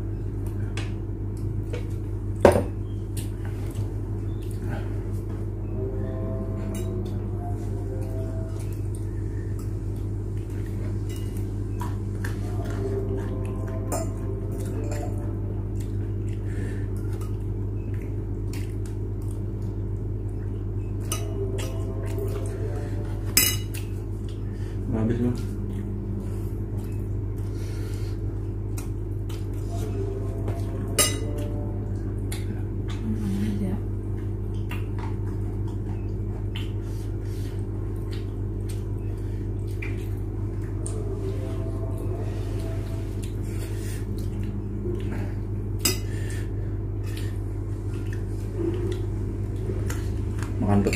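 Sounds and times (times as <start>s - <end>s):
low hum: 0.0s - 50.9s
wet clicks and squishes of eating: 15.7s - 22.6s, 23.7s - 24.5s, 28.6s - 29.6s, 31.8s - 33.1s, 34.4s - 36.9s, 37.8s - 41.0s, 47.0s - 50.9s.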